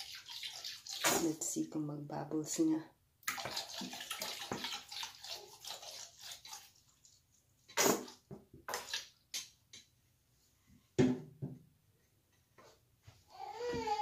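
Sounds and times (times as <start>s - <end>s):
water splashing in a bathtub: 0.0s - 9.9s.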